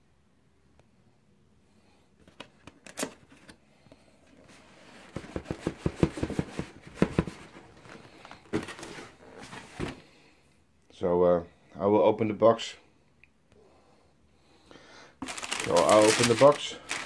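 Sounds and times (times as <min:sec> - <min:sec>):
cardboard box knocks and taps: 0:05.1 - 0:07.5.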